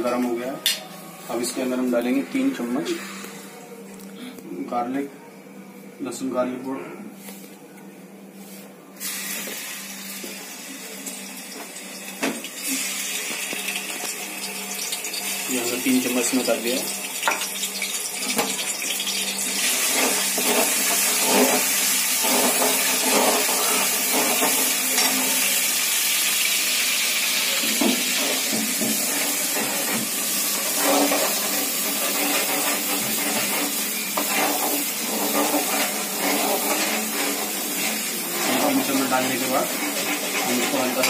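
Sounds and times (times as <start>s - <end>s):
garlic sizzling in oil: 9.0s - 41.0s.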